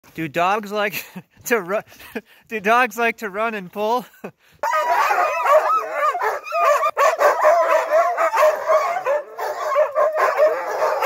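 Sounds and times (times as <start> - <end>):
sled dogs yelping and barking: 4.5 - 11.0.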